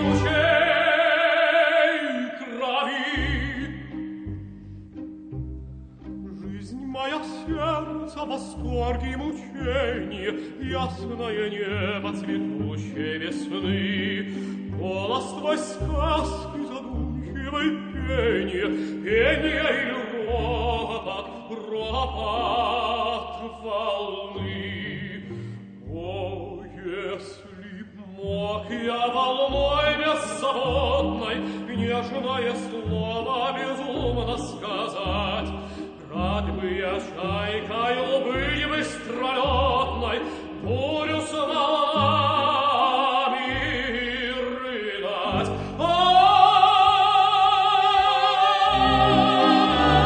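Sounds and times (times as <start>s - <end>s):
orchestra playing: 0.0s - 1.4s, 3.0s - 23.1s, 45.2s - 50.0s
tenor singing with vibrato: 0.0s - 5.1s, 6.0s - 50.0s.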